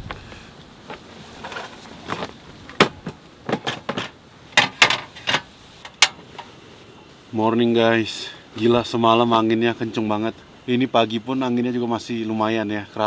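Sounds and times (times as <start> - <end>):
gas stove parts clacking: 2.8 - 6.5.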